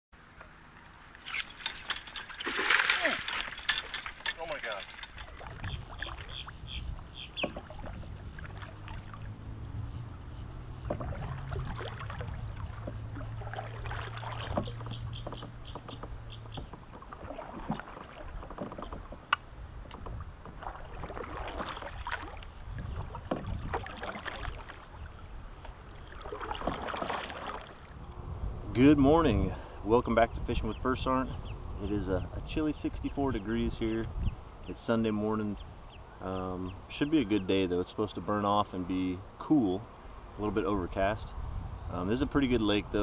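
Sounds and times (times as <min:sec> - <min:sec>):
water lapping along hull: 0:00.2 - 0:28.1
light knocks from boat: 0:07.4 - 0:08.7, 0:10.8 - 0:24.9, 0:25.6 - 0:27.8.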